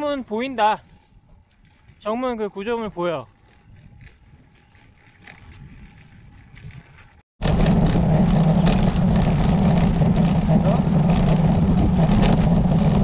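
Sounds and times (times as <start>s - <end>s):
faint riding noise: 0.0s - 13.0s
wind rushing over microphone: 5.4s - 13.0s
tyre rumble on pavement: 7.4s - 13.0s.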